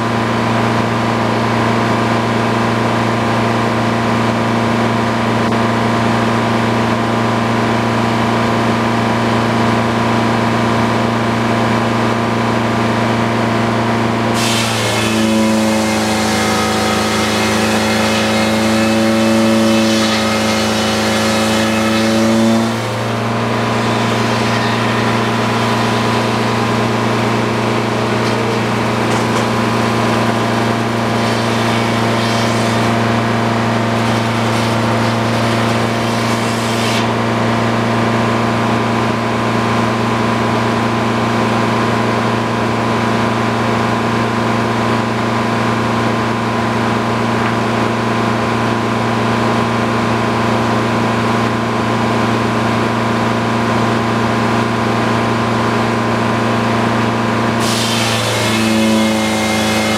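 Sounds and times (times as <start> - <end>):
engine drone: 0.0 - 59.9
circular saw blade cutting log: 13.3 - 38.7, 51.4 - 59.9.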